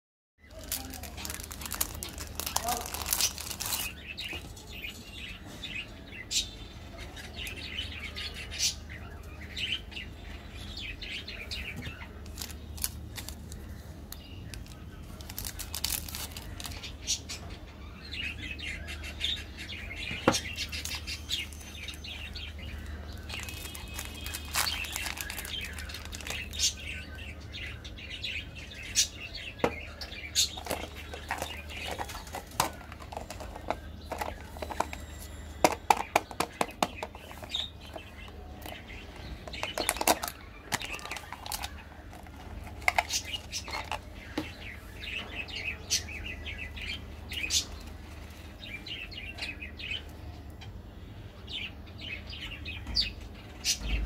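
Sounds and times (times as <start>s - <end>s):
plastic wrappers crinkling: 0.5s - 4.5s, 12.2s - 17.0s, 20.7s - 26.9s, 30.4s - 44.1s.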